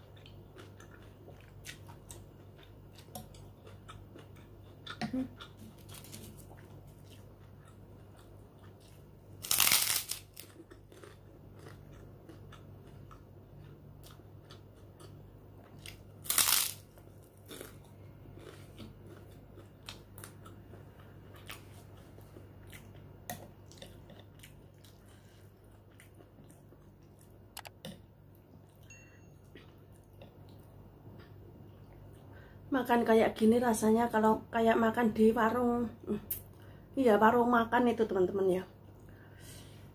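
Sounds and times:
crunchy chewing: 0:00.0 - 0:23.0
loud crunches of biting cracker: 0:09.4 - 0:11.2, 0:16.2 - 0:17.8.

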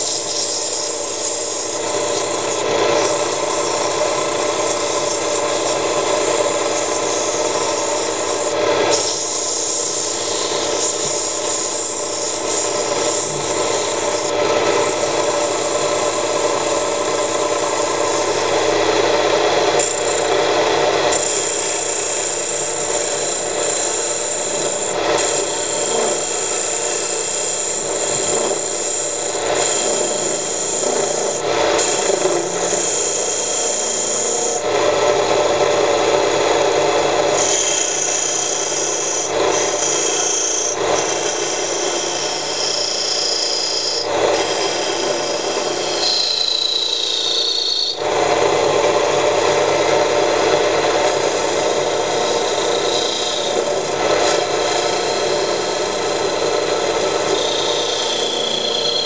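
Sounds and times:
lathe motor humming: 0:00.0 - 0:59.0
abrasive rasping on spinning wood: 0:51.0 - 0:59.0.

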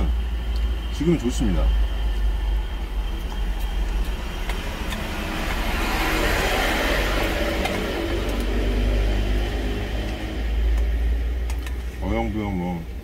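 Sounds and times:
low vehicle rumble: 0:00.0 - 0:13.0
vehicle passing by: 0:01.1 - 0:11.4.

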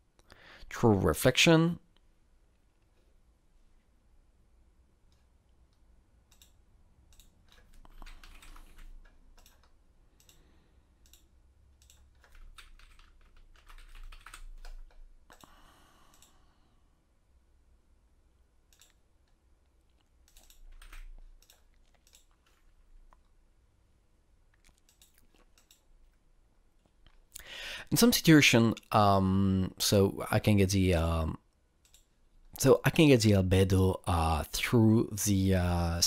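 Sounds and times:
faint keyboard typing: 0:05.1 - 0:16.4, 0:18.6 - 0:23.4, 0:24.5 - 0:27.4, 0:31.8 - 0:32.7.

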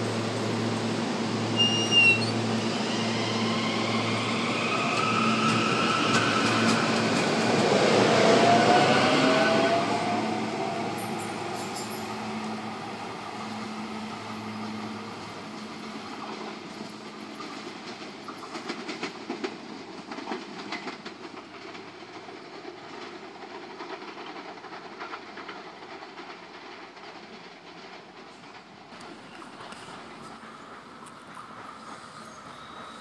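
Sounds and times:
electric train hum and wheel noise: 0:00.0 - 0:33.0
wheels clicking over rail joints: 0:10.9 - 0:12.2, 0:14.6 - 0:33.0.

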